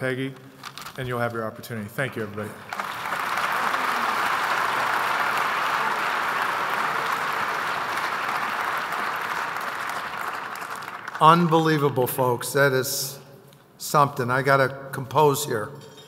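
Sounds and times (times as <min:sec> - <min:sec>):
audience applauding: 0:02.2 - 0:11.6.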